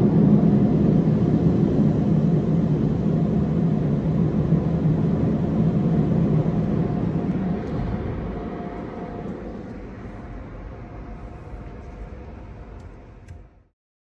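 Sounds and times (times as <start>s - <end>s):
blower dryers rushing: 5.0s - 13.3s.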